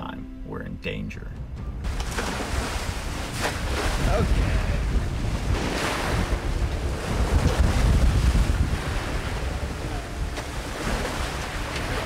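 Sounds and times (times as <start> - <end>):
wind buffeting microphone: 1.8 - 12.0
waves washing over deck: 1.9 - 12.0.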